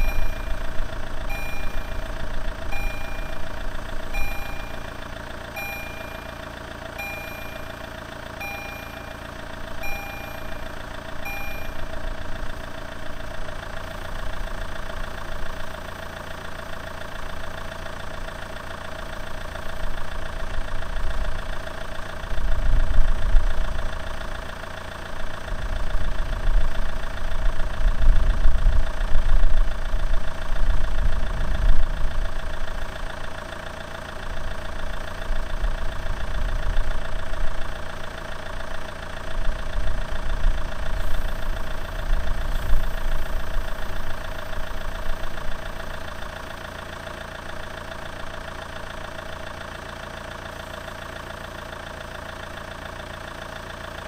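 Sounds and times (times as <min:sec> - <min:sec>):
level-crossing warning bell: 0:00.0 - 0:12.0
heavy low rumble: 0:00.0 - 0:14.9
steady engine hum: 0:00.0 - 0:54.0.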